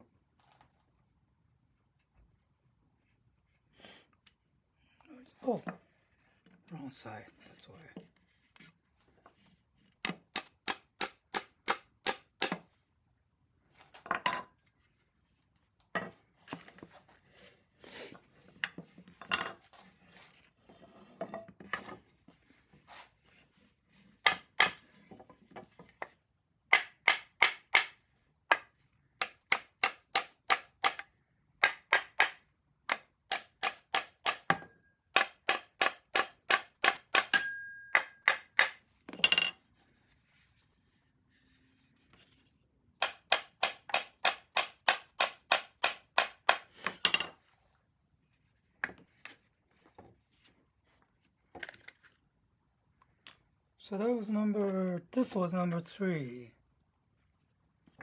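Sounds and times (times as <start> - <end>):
hammer tapping wooden pin: 24.2 - 24.8, 26.7 - 31.0, 31.6 - 38.8, 43.0 - 46.7.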